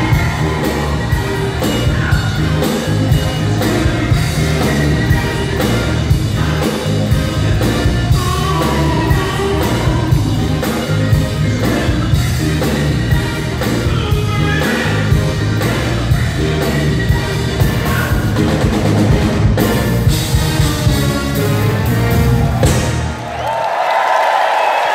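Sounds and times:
person singing: 0.0 - 18.3
drum kit beat: 0.0 - 23.4
live rock band playing: 0.0 - 23.4.

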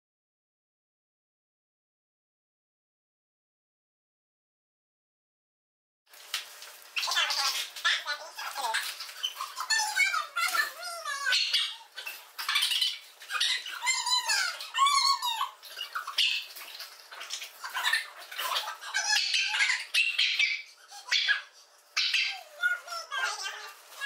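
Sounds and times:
small dogs yelping: 9.2 - 24.0.

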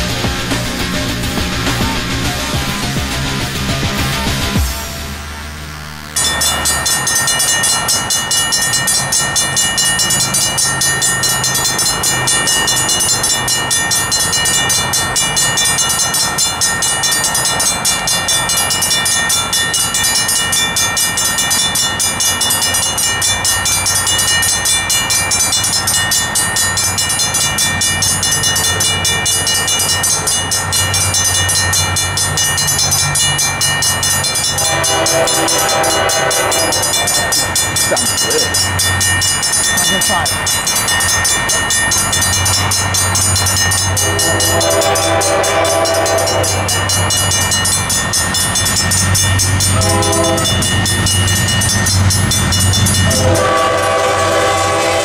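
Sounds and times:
low train rumble: 0.0 - 55.0
railroad crossing bells ringing: 0.0 - 55.0
locomotive air horn chord: 34.5 - 37.4, 44.0 - 46.7, 49.8 - 50.6, 53.1 - 55.0.

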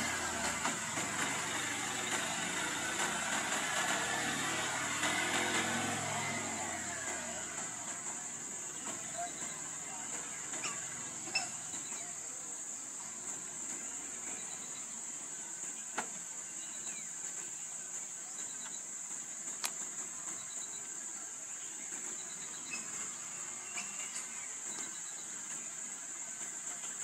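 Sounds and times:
insects droning: 0.0 - 27.0
sharp clicks: 18.4 - 21.0.

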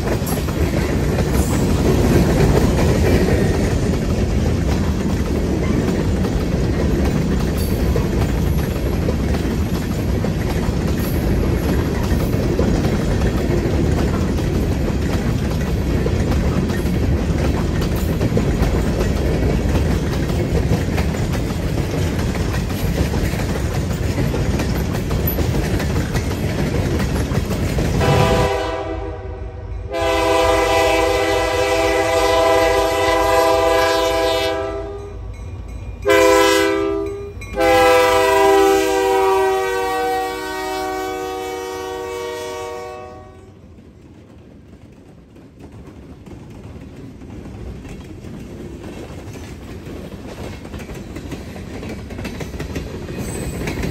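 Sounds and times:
freight cars rumbling and clattering: 0.0 - 28.3
locomotive air horn blasts: 28.0 - 35.2, 36.0 - 43.6.

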